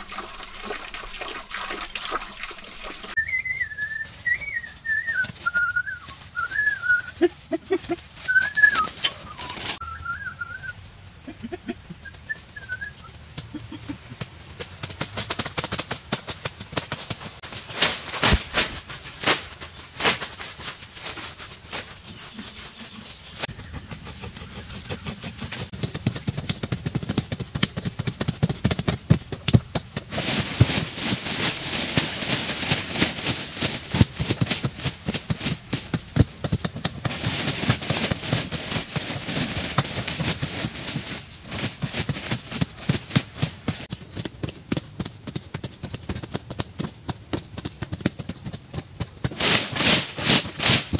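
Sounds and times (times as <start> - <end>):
soil scraping and crumbling: 0.0 - 7.0, 17.4 - 26.3, 30.0 - 43.8
thin high whistle: 0.0 - 10.8, 12.0 - 13.2, 17.4 - 23.8, 49.3 - 50.9
poles thudding into packed earth: 14.1 - 20.4.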